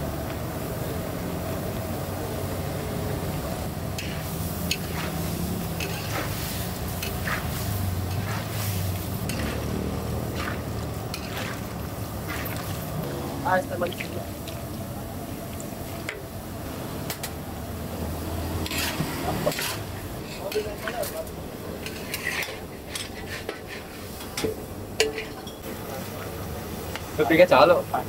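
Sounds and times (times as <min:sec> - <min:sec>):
meat sizzling in a pot: 0:00.0 - 0:17.2
utensil scraping and clanking pot: 0:03.9 - 0:13.0, 0:18.6 - 0:25.7.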